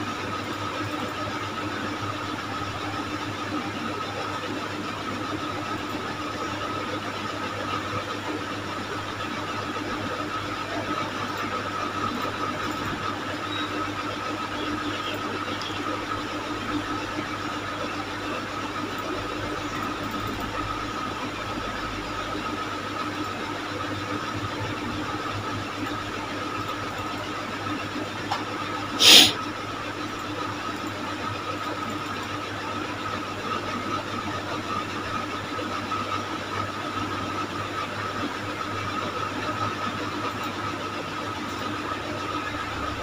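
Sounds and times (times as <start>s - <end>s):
background hum and hiss: 7.6s - 32.4s.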